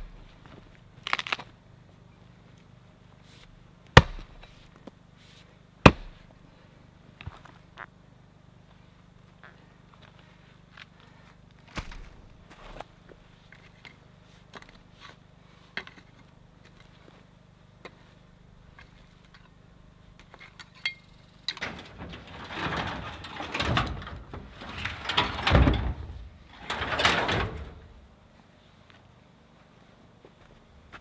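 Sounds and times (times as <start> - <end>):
scraping over dirt and wood chips: 21.6 - 28.0.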